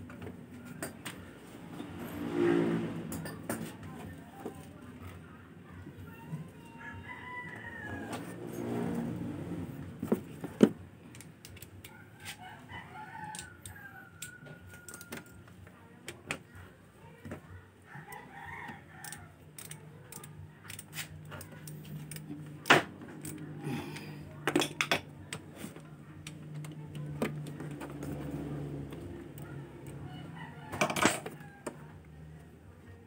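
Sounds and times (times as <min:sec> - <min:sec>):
metal tool clicks and clinks: 0:19.0 - 0:22.3.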